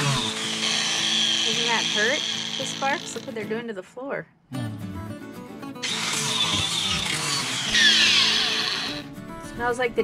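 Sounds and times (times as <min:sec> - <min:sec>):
angle grinder cutting steel: 0:00.0 - 0:03.3, 0:05.8 - 0:09.0.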